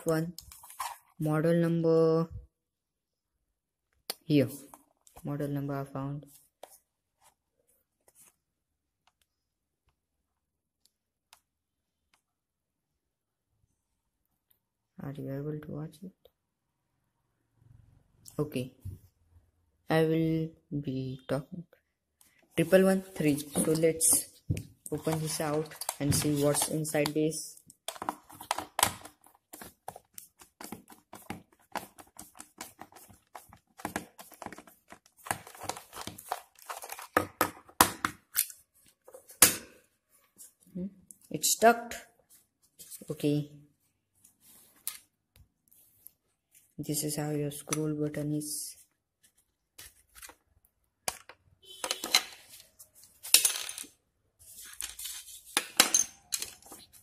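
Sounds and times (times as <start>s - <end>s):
plastic mouse parts clicking: 25.0s - 38.6s.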